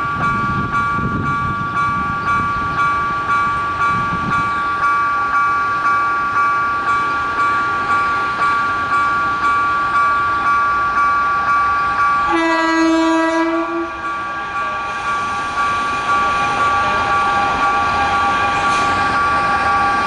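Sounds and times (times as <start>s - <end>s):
locomotive horn blast: 12.3s - 14.0s.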